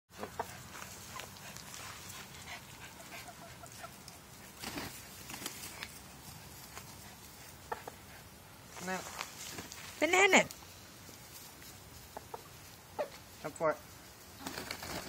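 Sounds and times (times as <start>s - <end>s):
chickens clucking: 0.1s - 5.4s, 6.8s - 8.5s, 11.7s - 13.4s.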